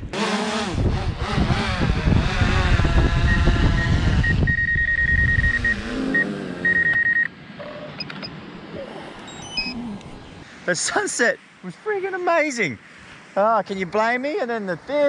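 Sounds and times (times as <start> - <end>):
vehicle engine rumbling: 0.7 - 10.5
high electronic beeps: 3.2 - 8.4, 9.3 - 9.8.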